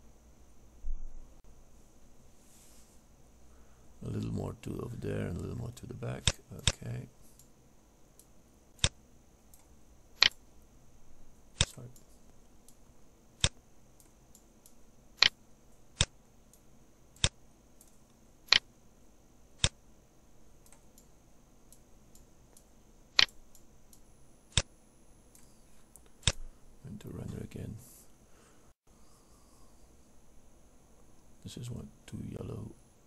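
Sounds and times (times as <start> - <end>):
faint high whine: 0.0 - 33.0
computer mouse clicking: 8.2 - 10.4, 13.4 - 15.4, 17.2 - 18.7, 21.7 - 24.7.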